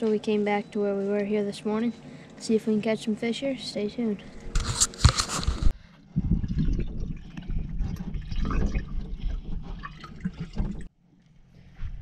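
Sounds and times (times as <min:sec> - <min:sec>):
water lapping against boat hull: 0:06.0 - 0:10.9.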